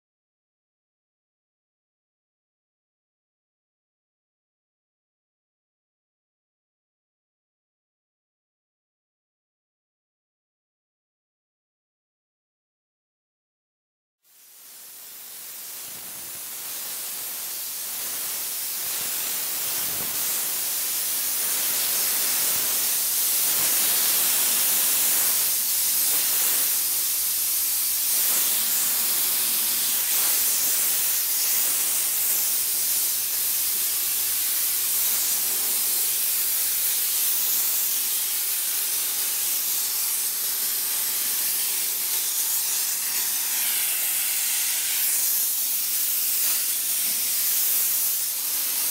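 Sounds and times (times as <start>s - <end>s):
steam jetting hiss: 14.3s - 48.9s.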